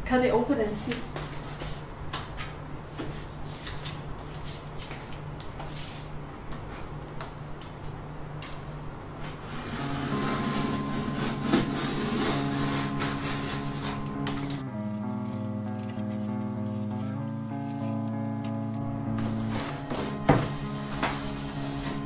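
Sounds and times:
box cutter scraping cardboard: 0:09.3 - 0:14.2
background music: 0:09.5 - 0:22.0.

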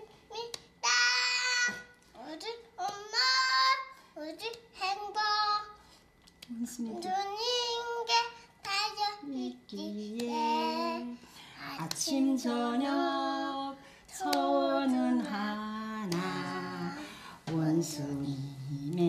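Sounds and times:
small child singing: 0:00.0 - 0:05.8, 0:06.7 - 0:18.6
woman singing along: 0:06.4 - 0:07.5, 0:09.2 - 0:19.0.

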